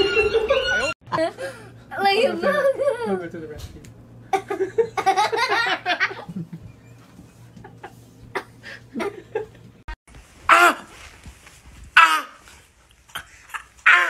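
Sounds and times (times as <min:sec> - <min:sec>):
person laughing: 0:07.6 - 0:09.6
wavering vocal cry: 0:13.2 - 0:14.0.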